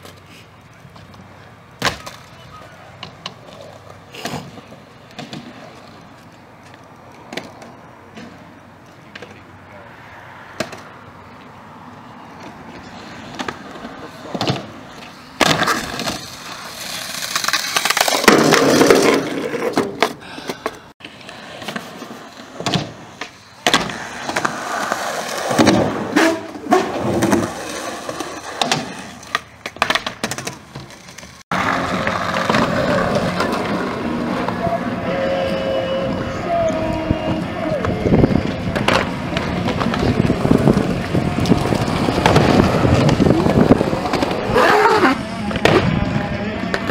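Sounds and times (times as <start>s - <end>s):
skateboard clacking on ground: 0.0s - 9.5s, 10.5s - 11.5s, 12.4s - 35.2s, 36.8s - 46.9s
skateboard wheels on concrete: 0.0s - 46.9s.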